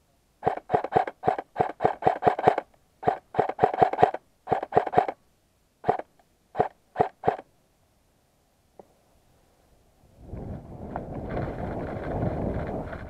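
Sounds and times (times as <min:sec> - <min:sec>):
airsoft gun shots: 0:00.4 - 0:05.2, 0:05.8 - 0:07.4.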